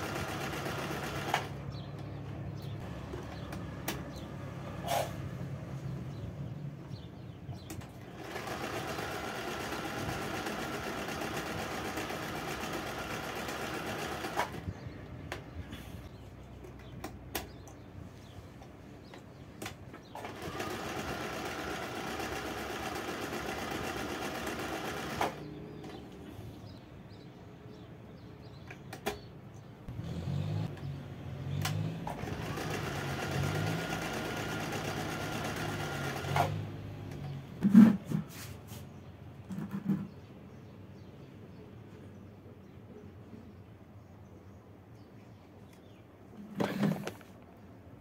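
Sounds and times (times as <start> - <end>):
sewing machine stitching: 0.0 - 1.6, 7.8 - 14.6, 20.1 - 25.5, 31.6 - 38.1.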